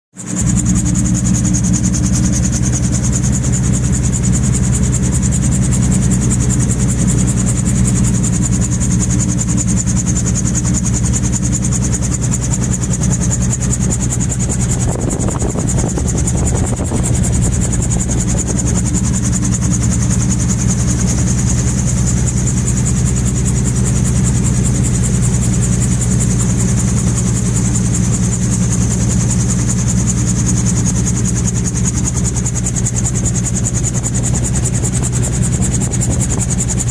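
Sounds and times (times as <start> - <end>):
aircraft engine idling drone: 0.2 - 36.9
rush of air: 13.9 - 21.0.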